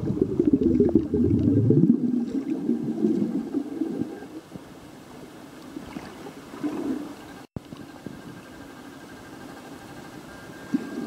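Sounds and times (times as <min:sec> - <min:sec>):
low underwater rumble: 0:00.0 - 0:04.3.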